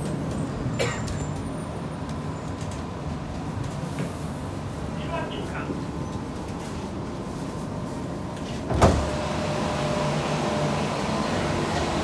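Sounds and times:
sliding doors thumping shut: 8.6 - 9.4.

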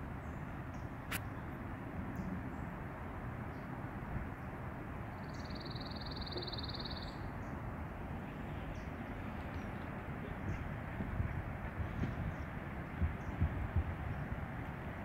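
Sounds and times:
songbird high-pitched trill: 5.2 - 7.3.

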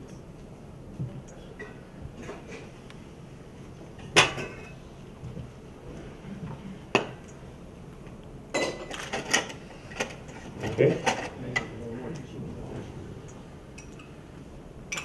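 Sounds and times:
dishes and cutlery clinking: 8.5 - 11.8.

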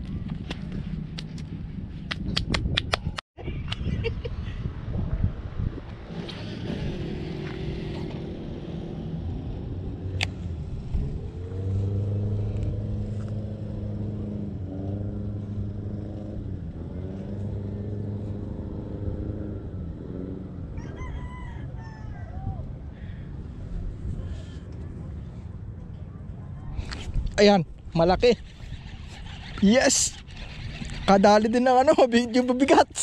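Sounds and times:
vehicle engine running: 6.3 - 19.1.

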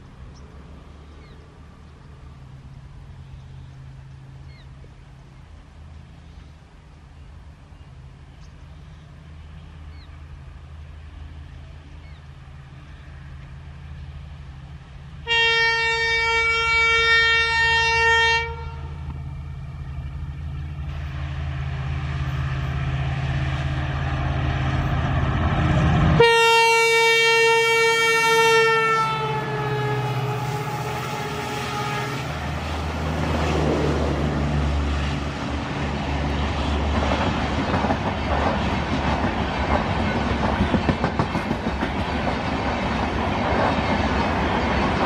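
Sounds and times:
diesel locomotive engine drone: 0.0 - 45.0
locomotive horn blasts: 15.2 - 19.1, 26.1 - 32.8
wheel-on-rail noise: 29.4 - 45.0.

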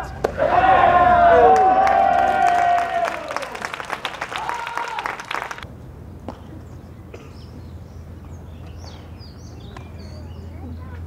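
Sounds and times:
spectators clapping: 1.3 - 5.6.

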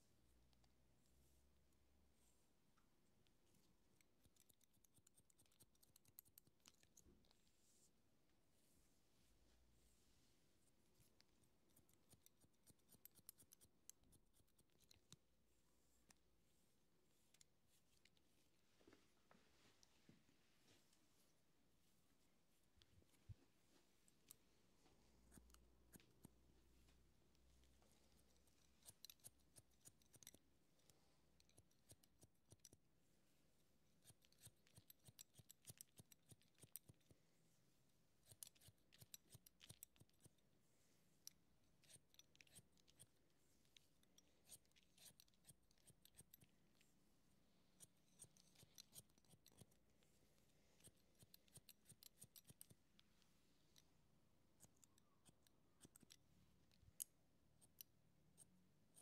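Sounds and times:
scissors snipping hair: 4.1 - 7.0, 11.3 - 15.2, 28.4 - 32.8, 34.0 - 37.2, 38.2 - 40.4, 41.8 - 43.2, 43.8 - 46.5, 47.8 - 49.9, 50.8 - 53.0, 54.5 - 59.0.

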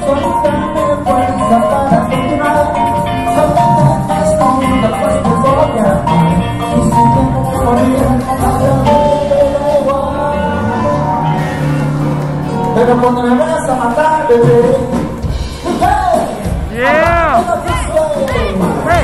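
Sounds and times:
person singing over instruments: 0.0 - 11.6.

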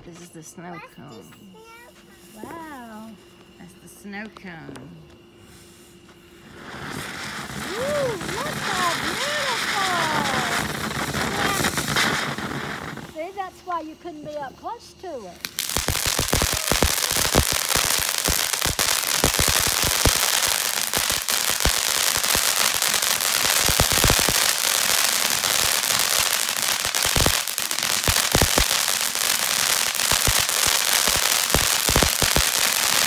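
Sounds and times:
firework fountain hissing: 5.4 - 14.0, 15.0 - 33.0
crackling pops: 6.7 - 13.2, 15.4 - 33.0.

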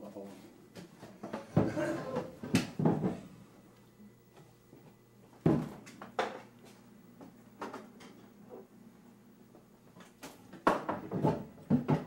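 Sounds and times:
kitchen knocks and clunks: 0.8 - 3.2, 5.4 - 6.5, 10.5 - 12.0.

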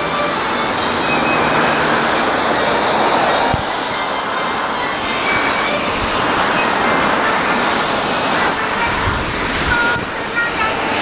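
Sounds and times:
traffic on wet street: 0.0 - 11.0.

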